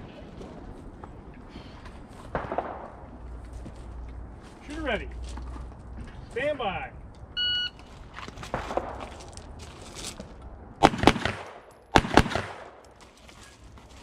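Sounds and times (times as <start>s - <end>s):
shot timer beep: 7.4s - 7.8s
handgun shots: 10.8s - 12.8s.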